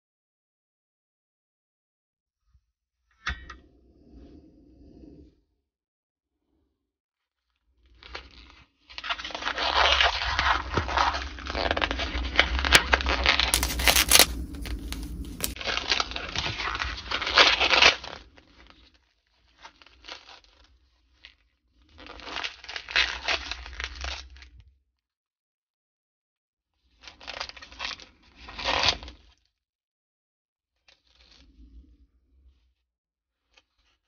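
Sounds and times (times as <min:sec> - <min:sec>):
rustling and crinkling: 0:09.8 - 0:15.6.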